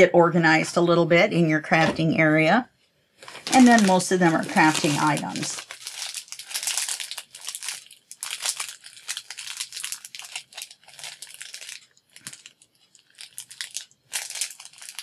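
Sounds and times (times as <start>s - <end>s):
plastic packaging crinkling: 3.2s - 15.0s.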